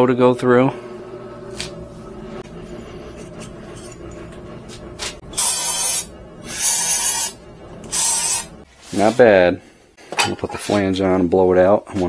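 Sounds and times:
compressed air blow gun hiss: 5.4s - 8.5s.

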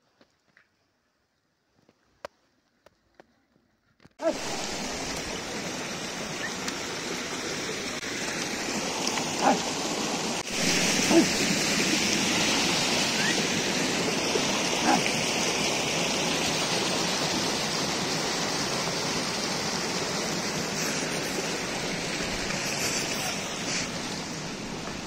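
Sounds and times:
mountain stream rushing: 4.2s - 25.0s
short pitched calls: 20.8s - 23.9s.

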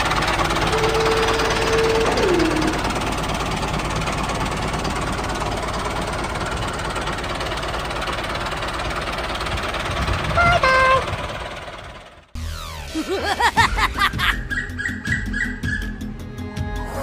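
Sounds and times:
small engine running: 0.0s - 13.2s
two-note tone: 0.7s - 2.9s.

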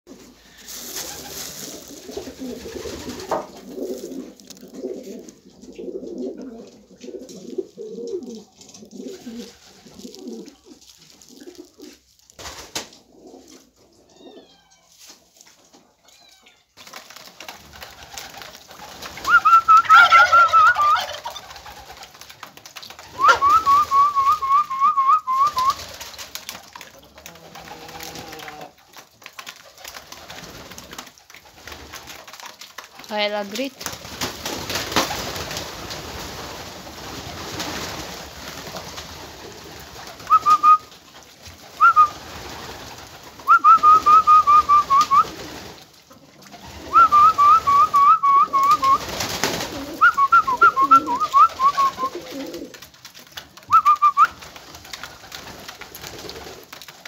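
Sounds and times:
pigeons cooing: 0.1s - 12.1s, 18.8s - 22.0s, 22.9s - 25.8s, 41.7s - 52.9s.

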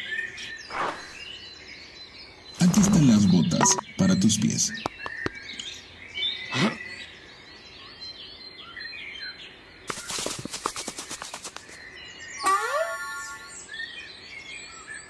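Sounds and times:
small birds chirping: 0.0s - 15.0s
fast run of clicks: 9.9s - 11.8s.

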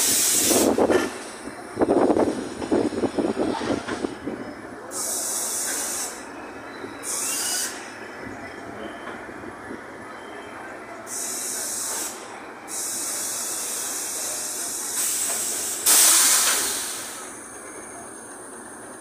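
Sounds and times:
compressed air hissing: 0.0s - 0.8s, 4.9s - 6.3s, 11.1s - 17.3s
electric train stopping: 0.0s - 19.0s.

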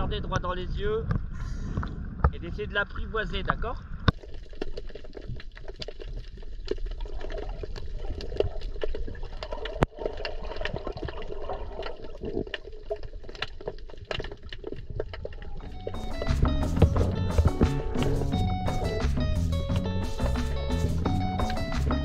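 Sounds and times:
fish feeding clicks and crunches: 3.4s - 16.3s
low underwater rumble: 14.4s - 22.0s.

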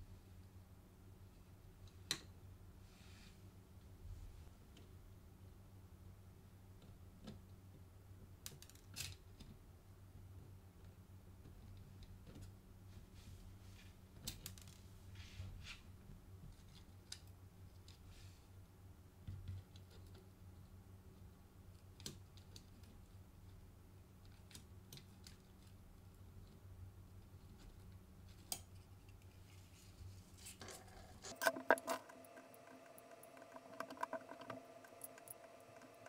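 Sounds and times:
low steady hum: 17.3s - 36.0s
small metallic clicks and taps: 30.6s - 36.0s.

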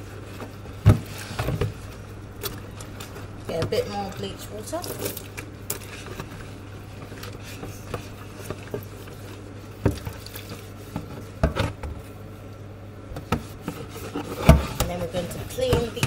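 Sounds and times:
cloth scrubbing plastic bowl: 0.0s - 11.7s, 13.2s - 16.0s
steady low hum: 0.0s - 16.0s
water sloshing: 1.0s - 11.4s.

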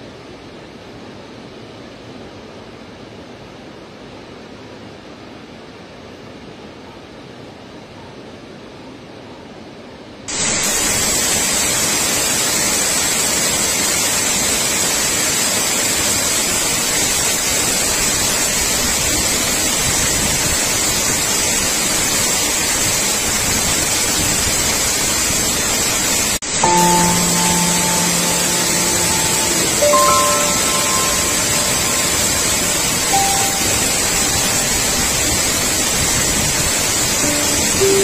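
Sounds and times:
waterfall rushing: 20.5s - 38.0s
held music notes: 26.4s - 36.0s, 36.8s - 38.0s.

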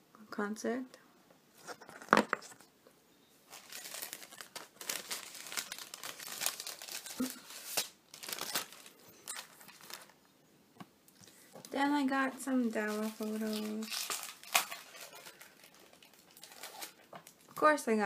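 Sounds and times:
plastic sleeve crinkling: 3.4s - 10.2s, 11.2s - 17.7s.

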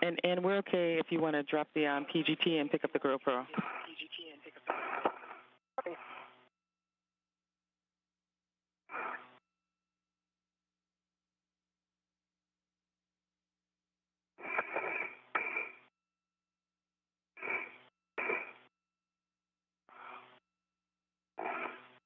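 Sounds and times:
breathing over radio: 3.5s - 6.5s, 14.4s - 15.8s, 19.9s - 20.4s.

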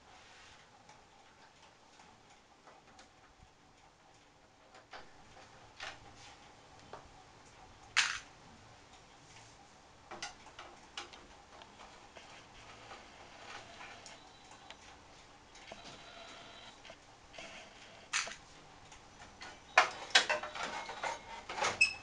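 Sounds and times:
plastic covers clicking and clacking: 18.1s - 18.4s, 19.2s - 22.0s.

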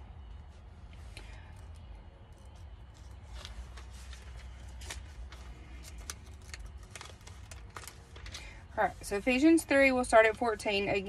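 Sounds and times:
steady low hum: 0.0s - 11.0s
thin pages flicking: 2.5s - 8.5s.

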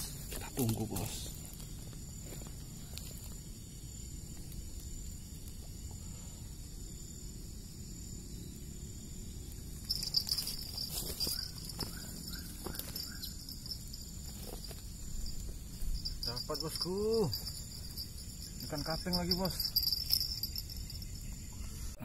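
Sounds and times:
insects trilling: 0.0s - 22.0s
low outdoor rumble: 0.0s - 22.0s
loud insect buzz: 0.2s - 22.0s
clicks and rustles: 9.9s - 18.0s.

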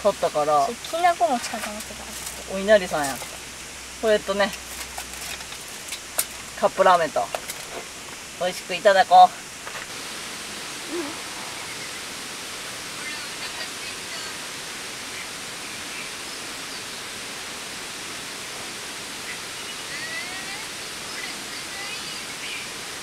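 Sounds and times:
stream rushing: 0.0s - 23.0s
faint bird calls: 10.8s - 12.2s.

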